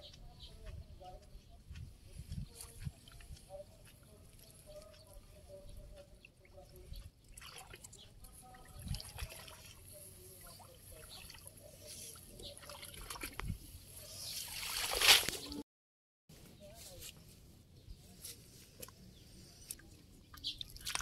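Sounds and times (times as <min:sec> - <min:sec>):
water trickling off fishing net: 0:14.3 - 0:15.6, 0:20.6 - 0:21.0.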